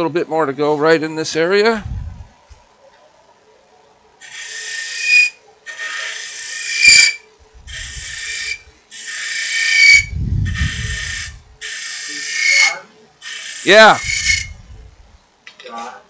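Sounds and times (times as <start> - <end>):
low rumble: 1.8 - 2.4
wood lathe tool scraping: 4.2 - 14.6
thin high squeal: 4.2 - 14.7.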